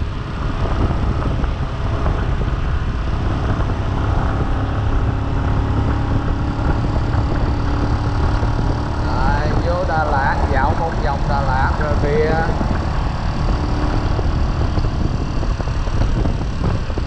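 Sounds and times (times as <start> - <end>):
motorbike engine: 0.0 - 17.0
wind noise on microphone: 0.0 - 17.0.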